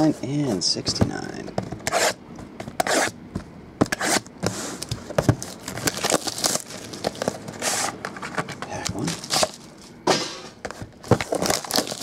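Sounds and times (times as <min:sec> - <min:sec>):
blade slitting plastic wrap: 0:05.4 - 0:07.3, 0:09.0 - 0:09.7, 0:11.1 - 0:12.0
shrink wrap crinkling: 0:05.4 - 0:10.0, 0:11.0 - 0:12.0.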